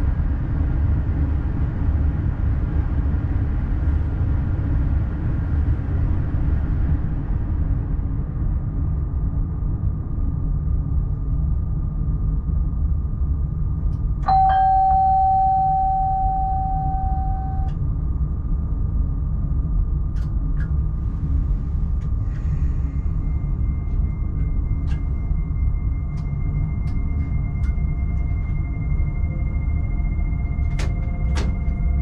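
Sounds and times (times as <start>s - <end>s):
train cab rumble: 14.2s - 17.8s, 20.1s - 32.0s
bell-like chime: 14.3s - 17.7s
faint high tone: 14.3s - 17.7s.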